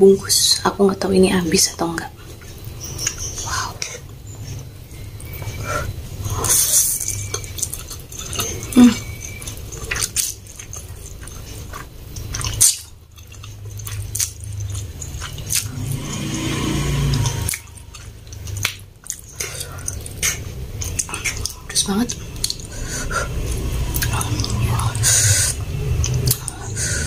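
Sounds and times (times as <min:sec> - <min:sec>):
slurping and chewing noodles: 0:02.2 - 0:27.0
wet smacking clicks: 0:17.2 - 0:22.7.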